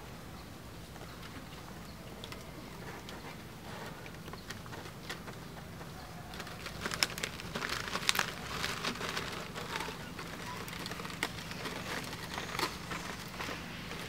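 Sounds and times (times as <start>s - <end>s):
birds calling: 0.0s - 14.0s
sharp clicks and crackling: 1.0s - 14.0s.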